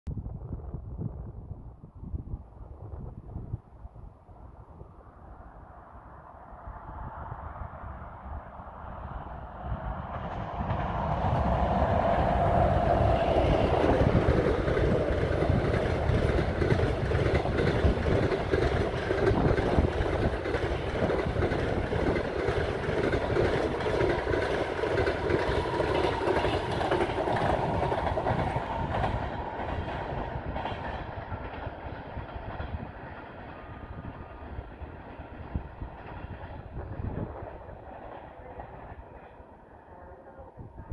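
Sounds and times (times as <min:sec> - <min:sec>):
electric train passing: 0:04.4 - 0:40.9
wheels clattering over rail joints: 0:10.3 - 0:33.6.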